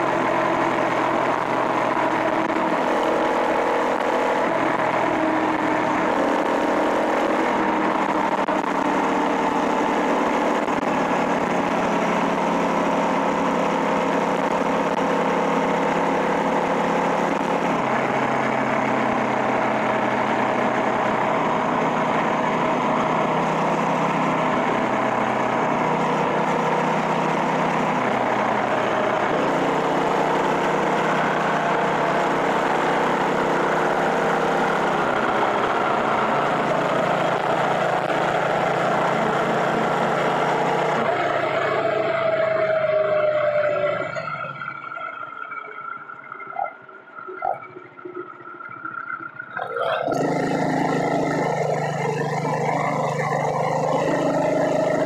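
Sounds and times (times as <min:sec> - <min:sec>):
small motorbike engine running: 0:49.6 - 0:55.0.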